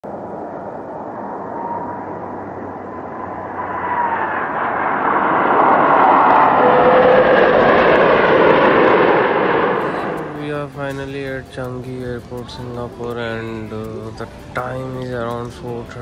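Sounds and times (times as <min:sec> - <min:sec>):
jet engines roaring by: 0:00.0 - 0:11.9.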